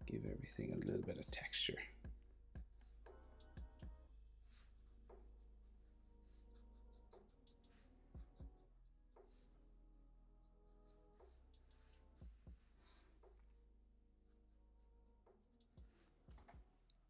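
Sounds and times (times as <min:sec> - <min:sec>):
marker scratching on paper: 0:04.4 - 0:08.4, 0:09.1 - 0:10.0, 0:10.7 - 0:13.6, 0:14.3 - 0:17.0.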